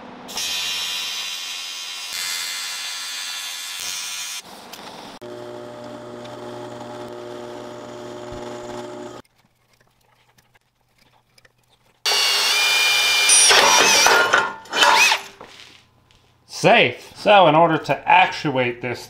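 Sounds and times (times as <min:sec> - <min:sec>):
cordless drill drilling metal: 0:05.2 - 0:09.2, 0:12.1 - 0:15.4
drill press motor running: 0:05.2 - 0:09.2.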